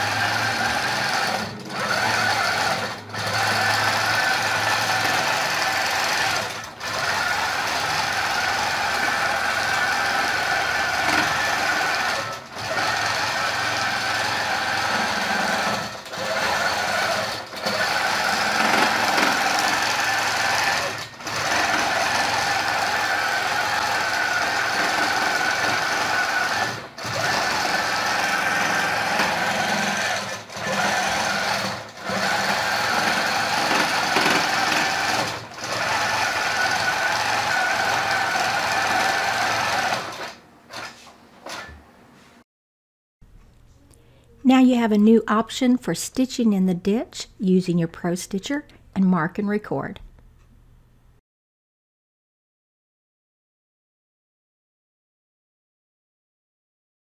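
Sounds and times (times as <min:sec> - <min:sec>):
quilting machine buzzing: 0:00.0 - 0:41.8.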